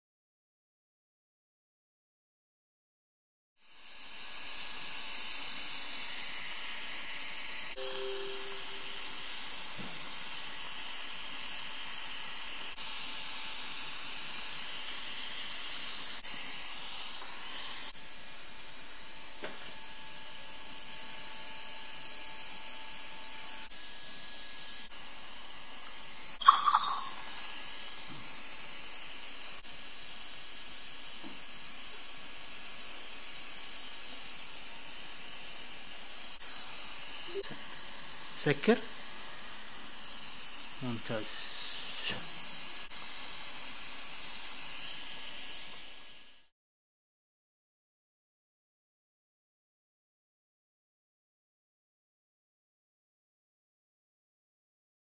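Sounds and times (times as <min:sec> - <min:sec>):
dental suction hissing: 0:26.4 - 0:27.5.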